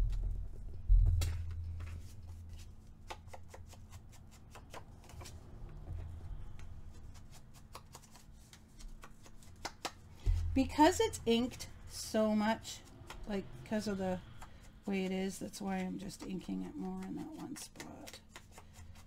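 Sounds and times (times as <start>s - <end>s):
paper being handled: 1.1s - 5.4s, 6.9s - 10.8s
foam tool tapping on paper: 7.5s - 10.8s.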